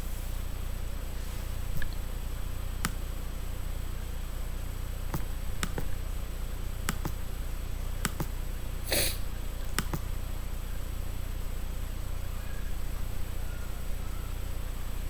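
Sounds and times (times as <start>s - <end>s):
low steady hum: 0.0s - 15.0s
computer mouse clicking: 2.8s - 3.0s, 5.1s - 5.9s, 6.8s - 7.2s, 8.0s - 8.4s, 9.6s - 10.1s.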